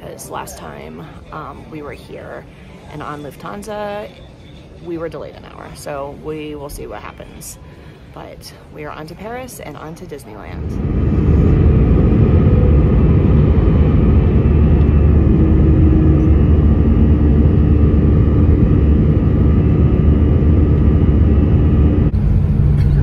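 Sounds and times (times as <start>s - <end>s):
steady cabin hum: 9.8s - 23.0s
jet engines and rushing air: 10.2s - 23.0s.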